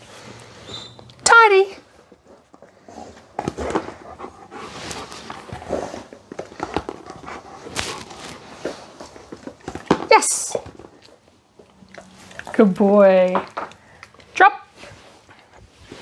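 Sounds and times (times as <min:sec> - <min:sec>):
dog panting: 0:02.6 - 0:09.3.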